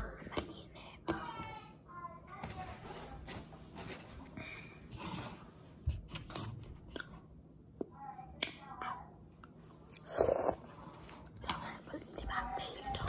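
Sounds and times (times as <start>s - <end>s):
person chewing noodles: 9.5s - 11.4s.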